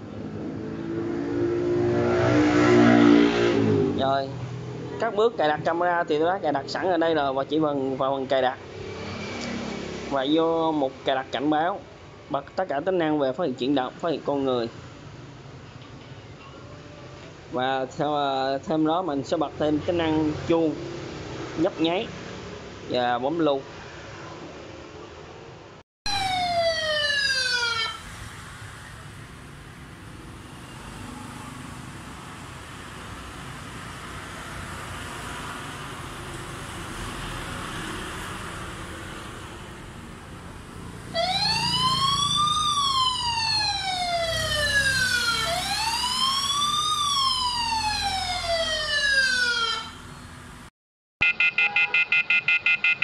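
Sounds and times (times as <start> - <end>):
alarm siren wailing: 26.1 - 29.3, 40.9 - 50.1, 51.2 - 53.0.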